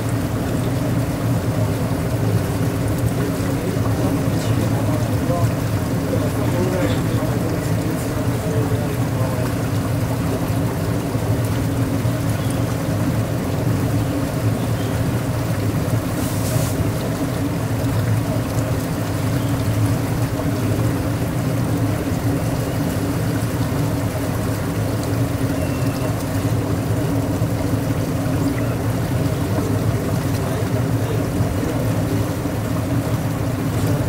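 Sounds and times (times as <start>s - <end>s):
boat motor humming: 0.0s - 34.0s
water washing along hull: 0.0s - 34.0s
brief hiss: 16.2s - 16.8s.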